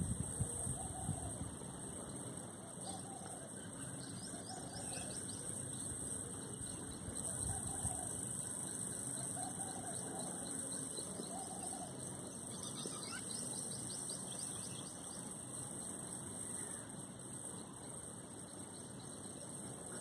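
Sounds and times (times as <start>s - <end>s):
steady high hiss: 0.0s - 20.0s
faint bird chirps: 2.8s - 15.3s.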